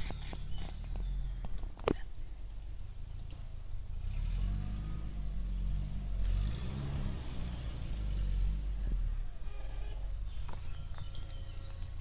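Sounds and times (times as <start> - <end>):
car engine revving under load: 3.1 - 12.0.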